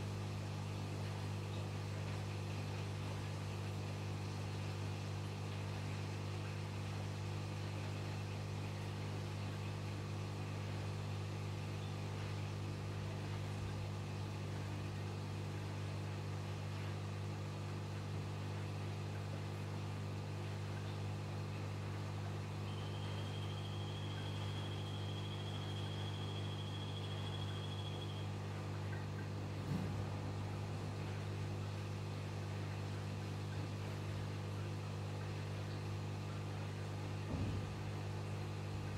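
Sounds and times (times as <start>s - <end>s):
aquarium pump humming: 0.0s - 38.9s
thin high whine: 22.5s - 28.6s.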